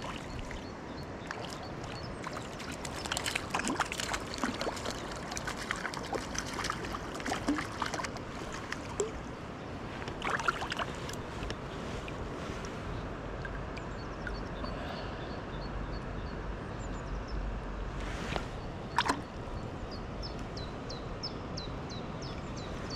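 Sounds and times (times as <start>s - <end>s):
stream water over stones: 0.0s - 14.8s, 18.3s - 20.7s.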